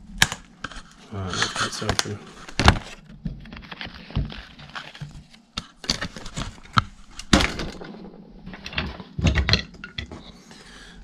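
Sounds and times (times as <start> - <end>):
metal parts knocking on workbench: 7.2 - 10.3.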